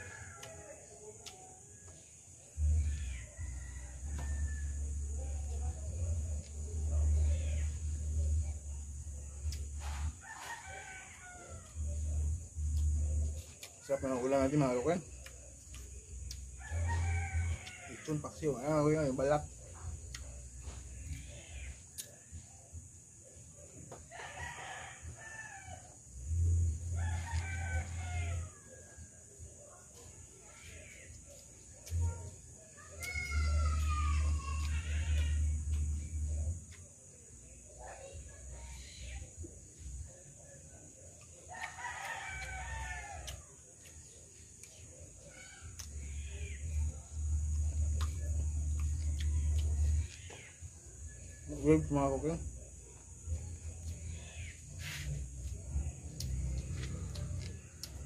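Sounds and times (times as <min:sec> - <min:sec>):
rooster crowing: 0:00.0 - 0:00.9, 0:02.6 - 0:05.0, 0:09.8 - 0:12.0, 0:16.6 - 0:19.1, 0:24.1 - 0:26.0, 0:26.8 - 0:29.1, 0:32.8 - 0:36.2, 0:41.5 - 0:43.4.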